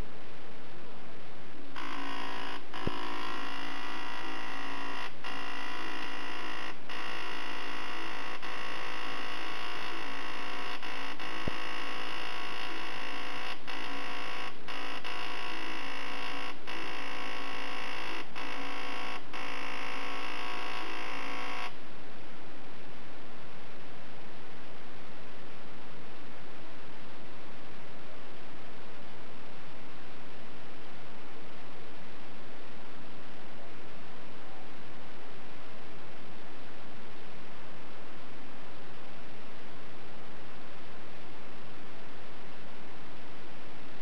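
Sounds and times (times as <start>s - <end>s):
electric buzzer tone: 1.7s - 21.8s.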